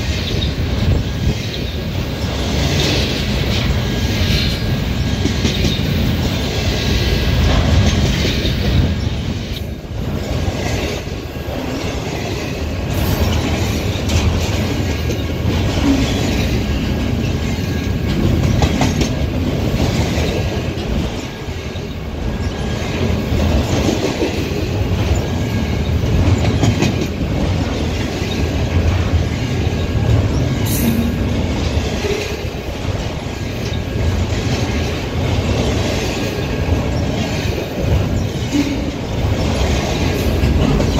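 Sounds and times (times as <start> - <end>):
train wheels rumbling on rails: 0.0 - 40.9.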